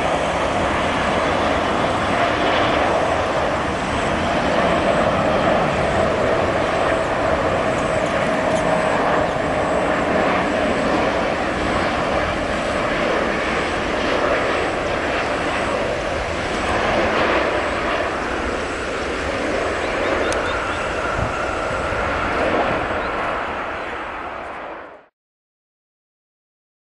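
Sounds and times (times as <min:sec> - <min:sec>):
faint jet whine: 0:00.0 - 0:25.1
jet engine rush: 0:00.0 - 0:25.1.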